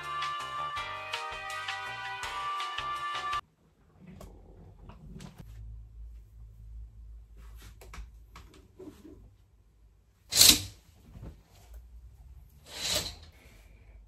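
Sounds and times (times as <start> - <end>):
curtain runners swishing: 12.5 - 13.6.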